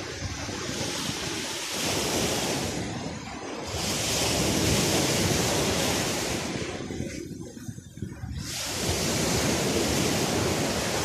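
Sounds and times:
small waves washing up shore: 0.0 - 11.0
wind buffeting microphone: 0.0 - 11.0.

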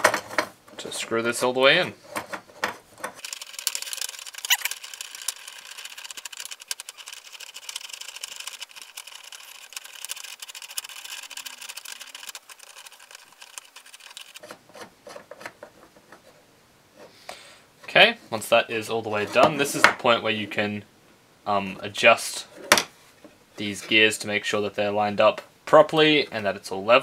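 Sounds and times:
threaded rods rattling through nuts: 3.2 - 14.4.

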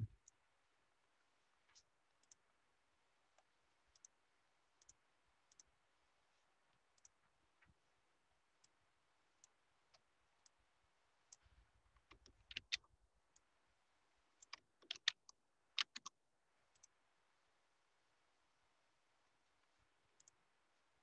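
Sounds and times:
keyboard keystrokes clicking: 12.1 - 12.8, 14.4 - 16.1.

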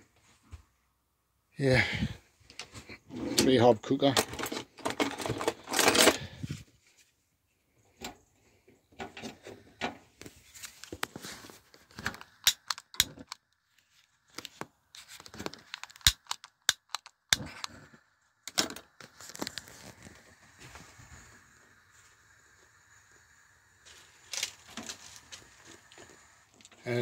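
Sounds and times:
rustling handling noise: 2.5 - 7.3, 9.1 - 17.8, 23.9 - 27.0.

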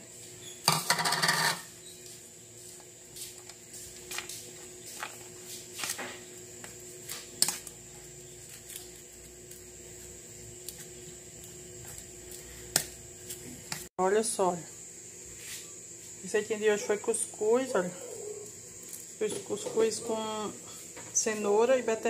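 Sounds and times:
faint steady hum: 0.0 - 22.0
spoon scraping in metal bowl: 0.7 - 1.7.

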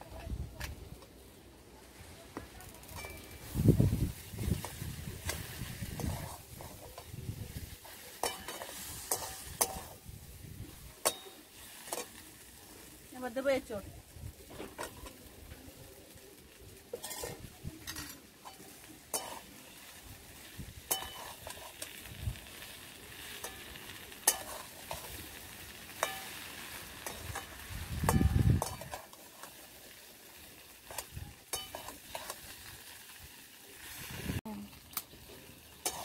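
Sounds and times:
faint sizzle: 0.0 - 36.0
metal spatula scraping wok: 2.9 - 12.5, 16.8 - 34.4, 35.2 - 36.0.

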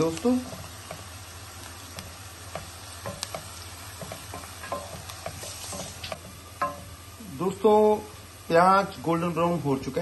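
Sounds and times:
onions sizzling in oil: 0.0 - 10.0
spatula scraping and tapping pan: 0.2 - 7.0.

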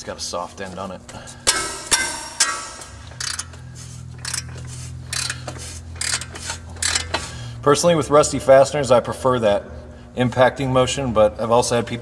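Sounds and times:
metallic knocks on ratchet handle: 1.5 - 3.5.

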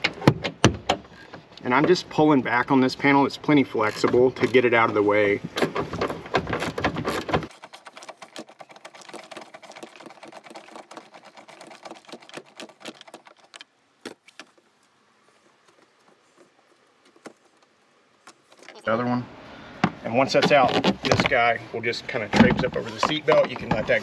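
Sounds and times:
handling noise: 3.8 - 18.9, 19.8 - 21.5, 22.2 - 24.0.

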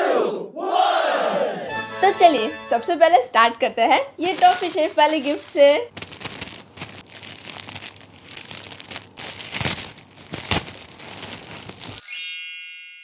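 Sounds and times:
foil gift wrap crinkling: 4.2 - 12.3.

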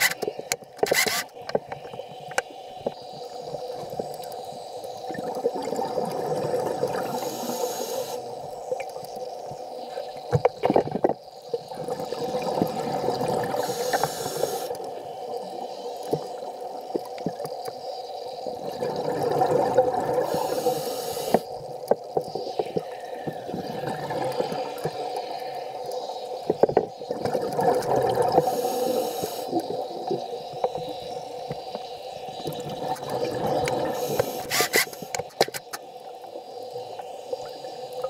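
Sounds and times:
diver exhaling bubbles: 23.1 - 25.1, 27.1 - 30.3, 32.6 - 34.5.

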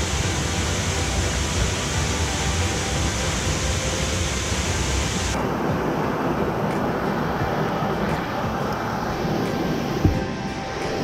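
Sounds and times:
waterfall pouring onto rocks: 0.0 - 5.4.

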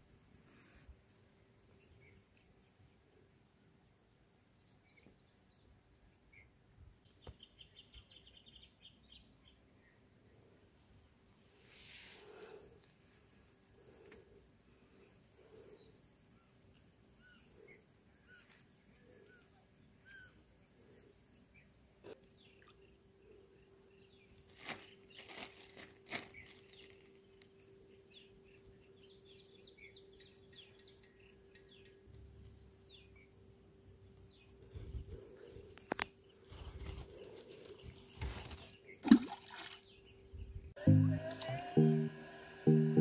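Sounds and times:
fishing net rustling and knocking: 36.4 - 39.7.

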